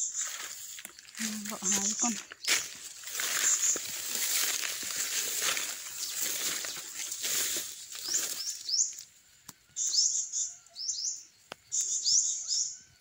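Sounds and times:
bird chirping: 0.0s - 4.0s, 5.0s - 13.0s
footsteps through grass and leaves: 0.0s - 9.2s.

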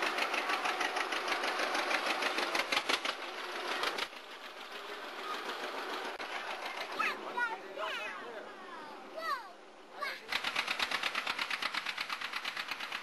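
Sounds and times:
tractor engine running: 0.0s - 7.2s, 10.3s - 13.0s.

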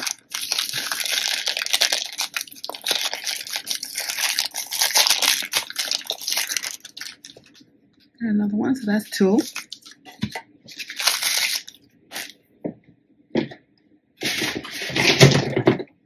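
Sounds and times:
plastic bag crinkling and tearing: 0.0s - 7.6s, 9.0s - 12.4s, 14.2s - 15.7s.

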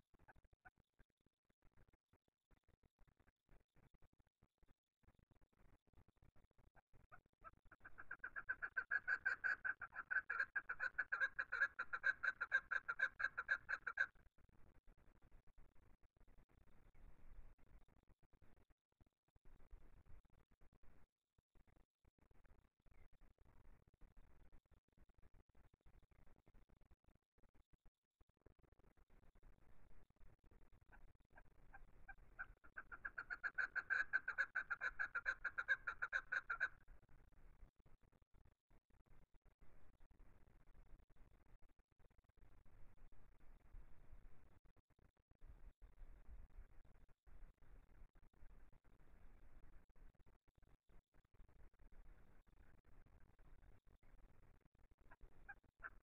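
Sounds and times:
partridge calling: 7.8s - 14.1s, 31.7s - 36.8s, 55.2s - 56.0s.

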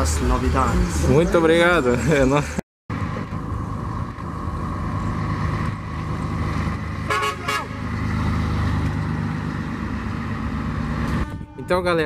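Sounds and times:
truck diesel engine passing: 0.0s - 12.0s
truck horn toots: 7.0s - 7.9s, 11.0s - 12.0s.

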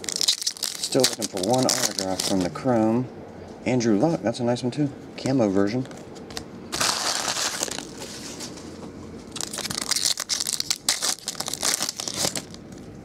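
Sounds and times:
foil wrapper crinkling and tearing: 0.0s - 2.6s, 6.7s - 8.2s, 9.3s - 12.8s.

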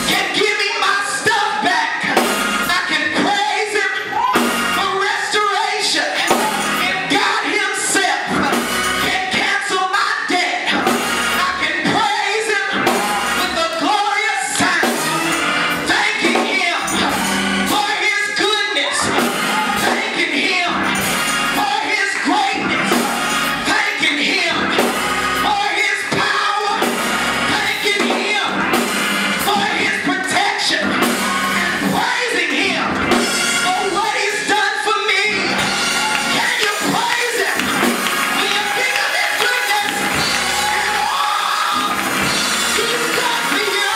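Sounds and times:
drums: 0.0s - 1.3s, 2.0s - 3.3s, 4.2s - 4.9s, 6.1s - 7.4s, 8.2s - 9.4s, 10.7s - 34.5s, 35.2s - 43.9s
organ: 0.0s - 43.9s.

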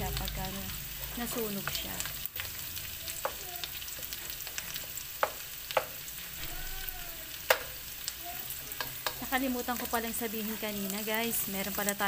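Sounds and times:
garlic and onion sizzling in oil: 0.0s - 12.0s
wooden spatula knocking on pan: 5.2s - 6.0s.

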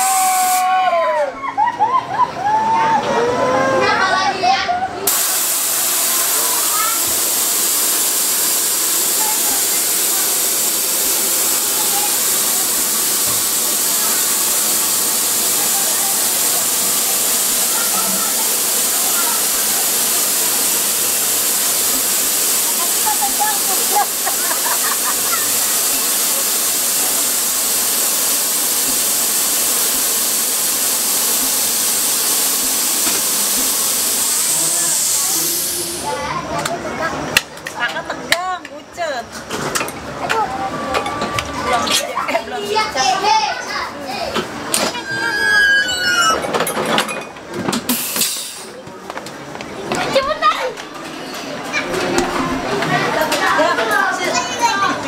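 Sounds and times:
loud hiss: 0.0s - 0.8s, 5.1s - 36.4s, 47.9s - 48.8s
riders crying out: 45.0s - 46.5s.

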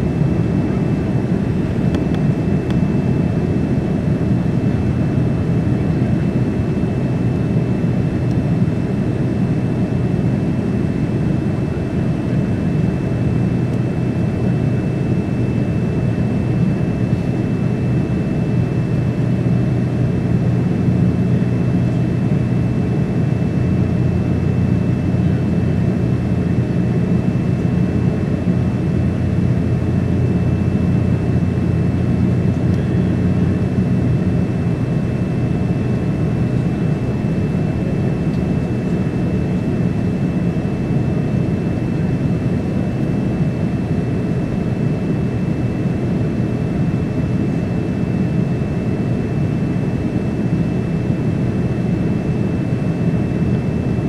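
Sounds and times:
airplane cabin rumble: 0.0s - 54.0s.

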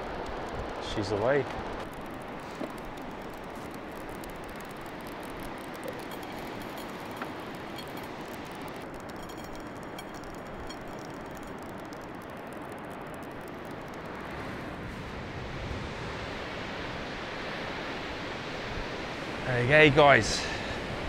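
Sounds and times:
surf washing: 0.0s - 9.6s
faint clicks: 0.0s - 14.4s.

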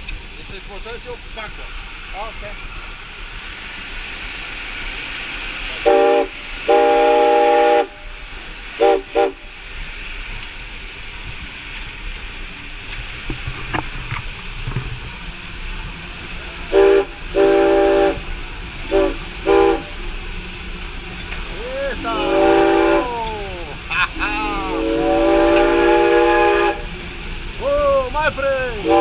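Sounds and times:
locomotive hiss and rumble: 0.0s - 29.0s
steam locomotive whistle blasts: 5.7s - 8.2s, 8.8s - 9.5s, 16.7s - 20.0s, 21.4s - 23.6s, 24.2s - 27.0s, 28.8s - 29.0s.

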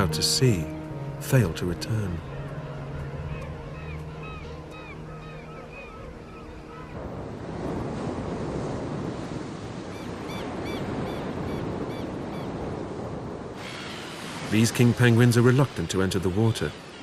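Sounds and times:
wind: 0.0s - 17.0s
faint high bird calls: 2.2s - 7.0s
surf breaking on beach: 7.0s - 17.0s.

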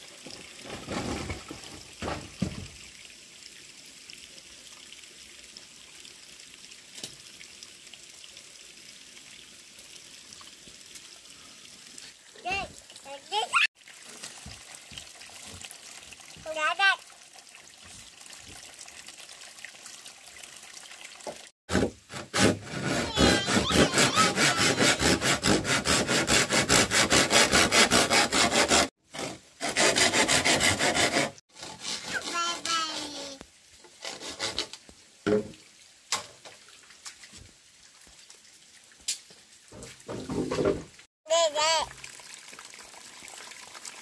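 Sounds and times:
hand saw cutting bamboo: 21.7s - 34.8s.

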